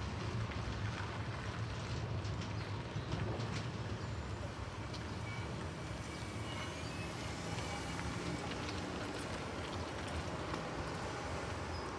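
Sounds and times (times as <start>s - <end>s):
distant train rumble: 0.0s - 11.9s.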